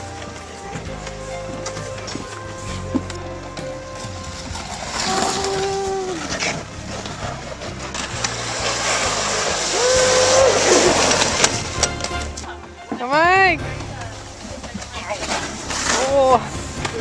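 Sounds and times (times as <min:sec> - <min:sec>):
sled runners scraping over ice: 0:00.0 - 0:17.0
long held yells: 0:09.7 - 0:10.8.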